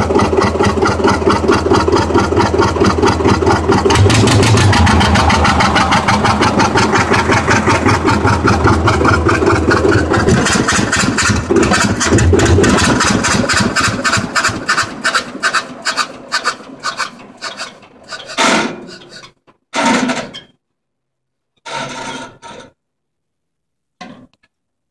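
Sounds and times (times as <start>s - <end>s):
diesel engine shutting down: 0.0s - 18.0s.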